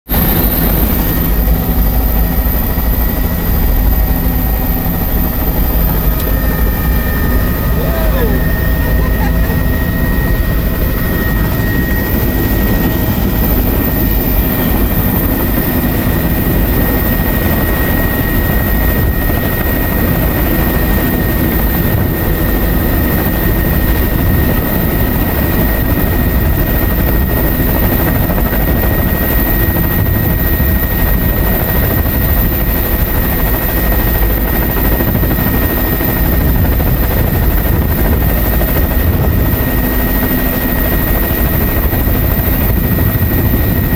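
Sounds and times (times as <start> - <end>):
high whine: 0.1 - 22.6
helicopter engine and rotor rumble: 0.1 - 43.9.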